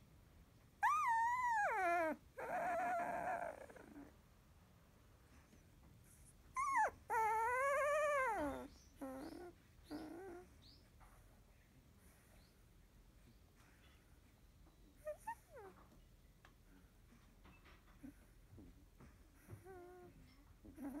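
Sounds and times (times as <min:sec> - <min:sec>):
puppy whimpering and whining: 0:00.8 - 0:04.1, 0:06.5 - 0:10.6, 0:15.0 - 0:15.8, 0:19.4 - 0:21.0.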